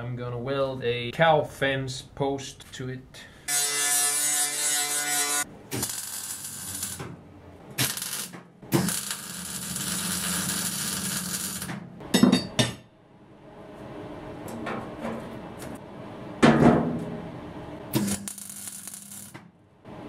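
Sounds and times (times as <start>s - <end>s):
welding arc crackling: 4.0s - 7.1s, 7.7s - 11.8s, 17.9s - 19.4s.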